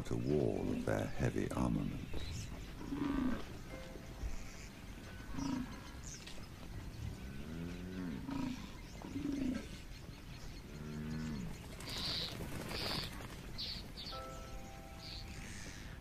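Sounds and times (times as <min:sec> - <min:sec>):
buffalo grunting: 0:02.8 - 0:03.6, 0:05.1 - 0:06.0, 0:07.2 - 0:09.7
buffalo lowing calls: 0:02.8 - 0:06.1, 0:07.2 - 0:09.7.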